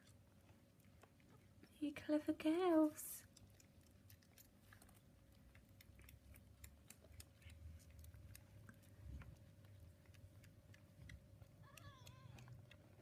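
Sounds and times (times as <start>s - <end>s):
kittens suckling clicks: 3.0s - 13.0s.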